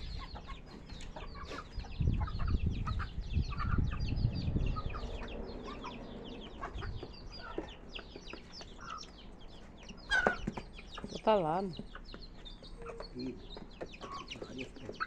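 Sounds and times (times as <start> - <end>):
chickens clucking: 0.0 - 15.0
chicks peeping: 0.0 - 15.0
low rumble: 2.0 - 7.5.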